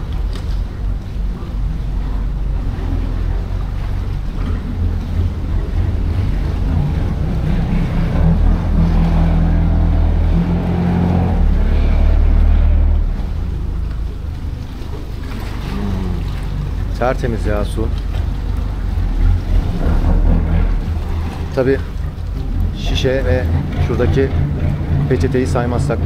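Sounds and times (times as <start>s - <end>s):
boat engine drone: 0.0s - 26.0s
water noise: 0.0s - 26.0s
wind: 0.0s - 26.0s.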